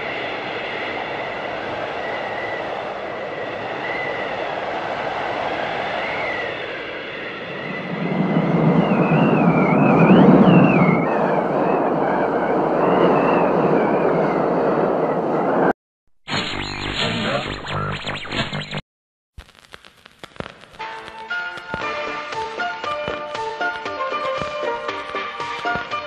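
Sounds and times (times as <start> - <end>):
rumbling rushing noise: 0.0 - 15.7
wavering high squealing tones: 6.2 - 15.7
radio tuning static: 16.3 - 18.8, 19.4 - 21.2.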